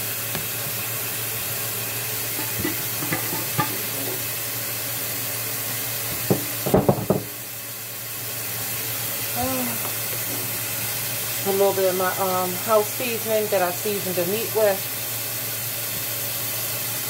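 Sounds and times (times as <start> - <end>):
faucet running into a sink: 0.0 - 17.0
plastic container knocking: 6.2 - 7.3.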